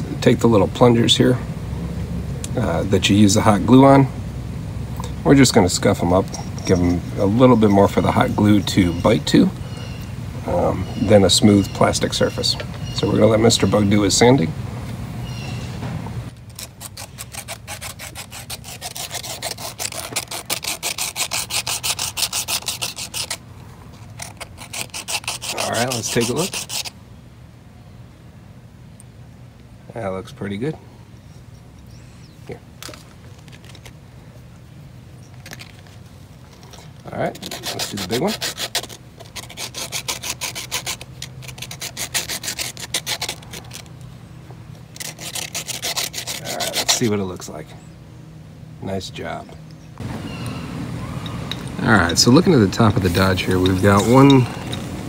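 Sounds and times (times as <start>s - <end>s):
plastic tab scratching on sanding disc: 16.4s - 23.4s, 24.2s - 26.9s, 36.7s - 44.0s, 45.0s - 47.1s.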